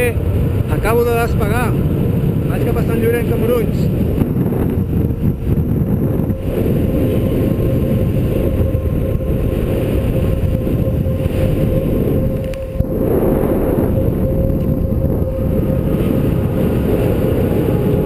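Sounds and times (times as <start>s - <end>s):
wind buffeting microphone: 0.0s - 18.0s
thin steady tone: 3.6s - 18.0s.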